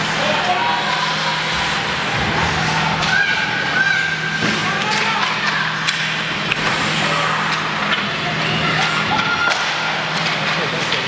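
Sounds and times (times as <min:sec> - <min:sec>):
steady low hum: 0:00.0 - 0:11.0
hockey sticks and puck clacking: 0:04.4 - 0:11.0.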